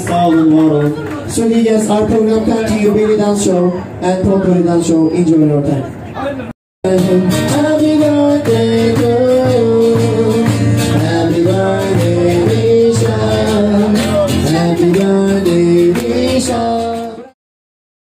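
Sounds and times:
live music with steady beat: 6.8 - 17.3.

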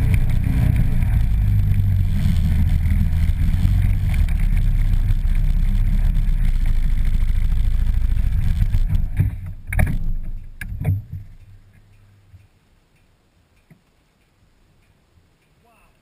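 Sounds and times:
atv engine running: 0.0 - 12.2
sharp clunks: 8.9 - 11.5.

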